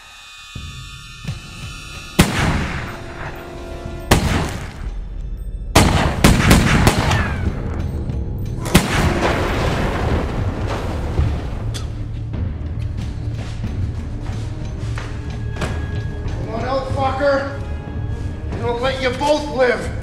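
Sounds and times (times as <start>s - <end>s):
film score music: 0.0s - 20.0s
handgun shots echoing: 5.8s - 7.6s.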